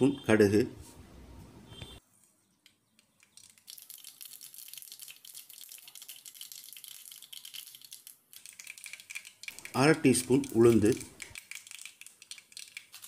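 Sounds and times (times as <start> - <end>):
mustard seeds crackling in oil: 2.6 - 13.0.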